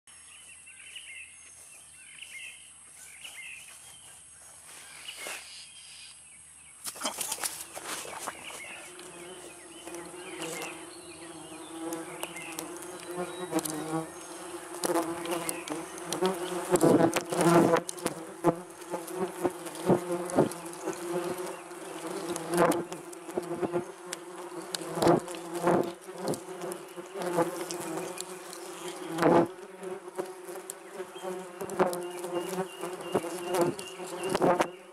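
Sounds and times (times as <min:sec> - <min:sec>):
wasps buzzing: 0:07.0 - 0:34.9.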